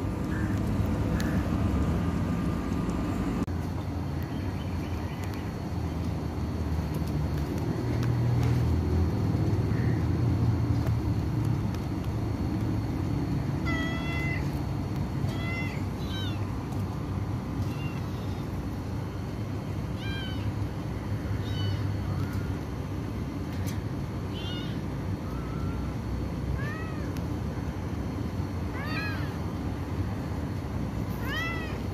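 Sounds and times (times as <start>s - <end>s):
cat meowing: 13.6s - 14.5s, 15.3s - 16.4s, 21.4s - 22.0s, 24.3s - 25.9s, 26.6s - 27.1s, 28.7s - 29.4s, 31.2s - 31.8s.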